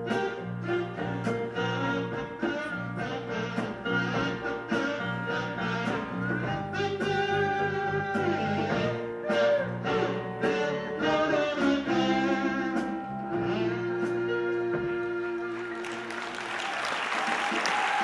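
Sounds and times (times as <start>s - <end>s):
guitar: 0.0s - 15.8s
harmonica through microphone: 0.0s - 16.1s
audience applause: 15.4s - 18.0s.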